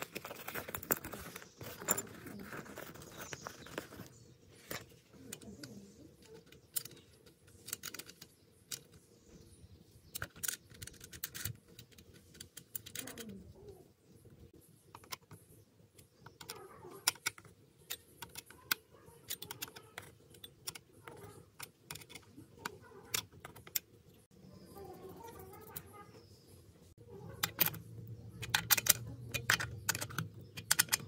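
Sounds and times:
light clicks and metallic ticks: 27.3 - 31.0.

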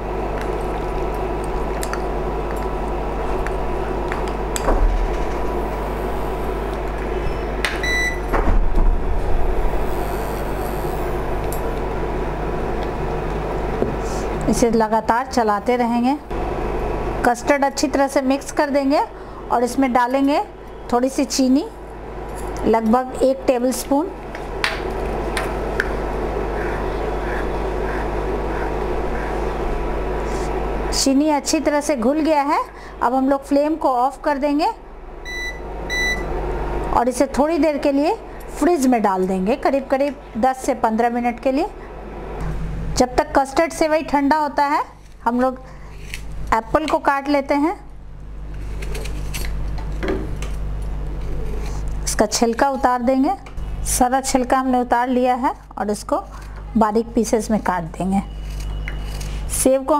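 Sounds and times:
cooling fan hum: 0.0 - 59.9.

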